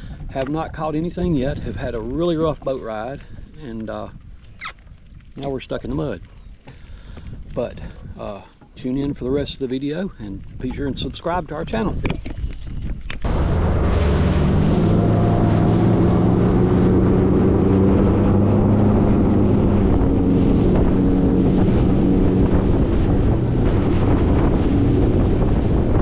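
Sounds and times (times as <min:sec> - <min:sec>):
wind buffeting microphone: 0:00.0 - 0:26.0
water rushing past hull: 0:13.1 - 0:26.0
outboard motor running: 0:13.2 - 0:26.0.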